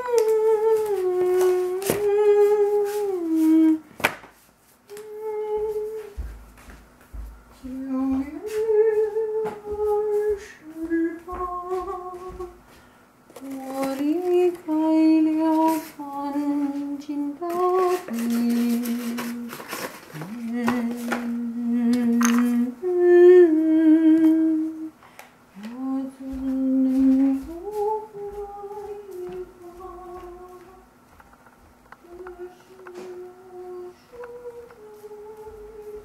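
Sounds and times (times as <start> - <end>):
person humming: 0.0 - 3.9, 4.9 - 6.3, 7.6 - 12.6, 13.4 - 25.0, 25.6 - 30.9, 32.0 - 36.0
clattering and rustling: 17.5 - 21.3.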